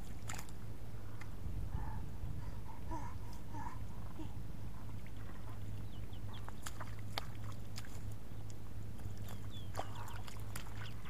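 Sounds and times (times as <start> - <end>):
feet and hands splashing in muddy water: 0.0 - 1.3, 4.8 - 11.0
steady low hum: 0.0 - 11.0
small birds chirping: 2.9 - 11.0.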